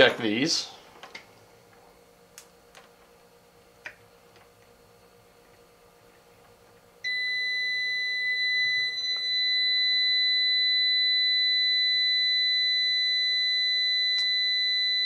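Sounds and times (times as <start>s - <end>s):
high-pitched continuity beep tone: 7.1s - 15.0s.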